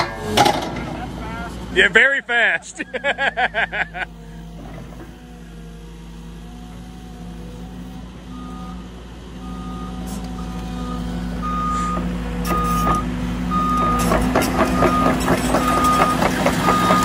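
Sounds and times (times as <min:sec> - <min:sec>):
diesel engine running: 0:00.0 - 0:17.0
reversing alarm beeping: 0:08.3 - 0:17.0
clanking tracks: 0:11.7 - 0:17.0.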